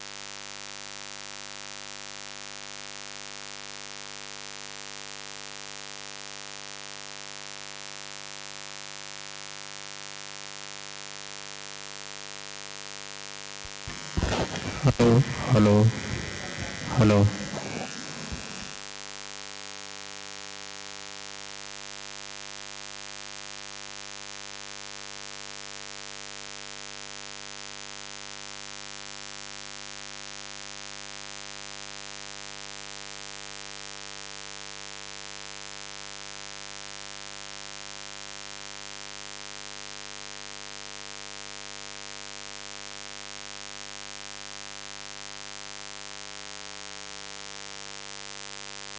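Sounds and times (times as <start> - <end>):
electrical mains buzz and hiss: 13.7 - 18.8.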